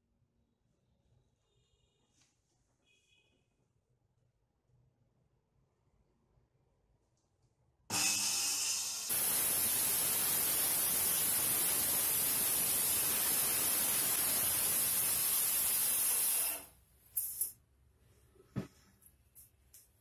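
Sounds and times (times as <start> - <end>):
circular saw cutting wood: 7.9 - 11.2.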